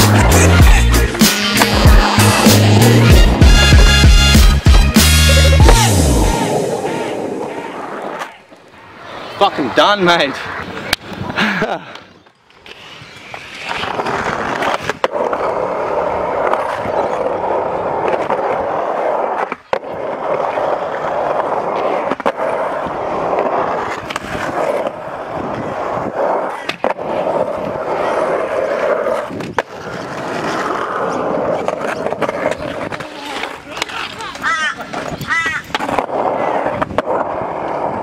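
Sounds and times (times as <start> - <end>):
skateboard wheels rolling on concrete: 0.0 - 38.0
skateboard clacking on ground: 1.1 - 2.2, 10.5 - 38.0.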